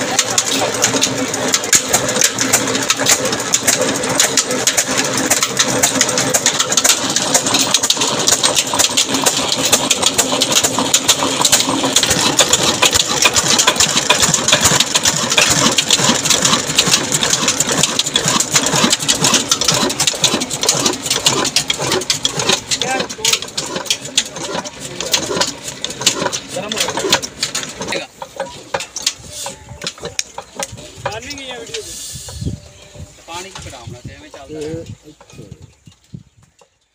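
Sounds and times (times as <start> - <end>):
diesel engine clattering: 0.0 - 36.9.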